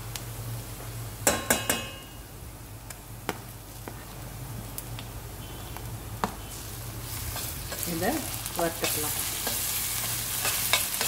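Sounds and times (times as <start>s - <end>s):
metal spoon knocking on steel pan: 1.3s - 2.1s.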